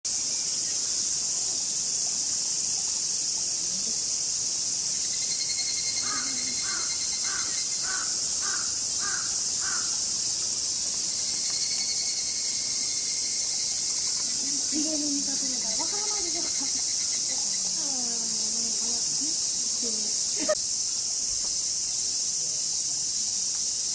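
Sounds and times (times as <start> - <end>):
cicadas chorus: 0.1 - 23.9
crow cawing: 6.0 - 10.0.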